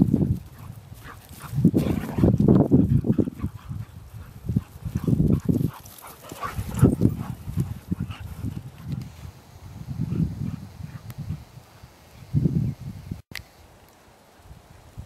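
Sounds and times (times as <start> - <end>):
dogs play-growling: 0.5 - 8.9.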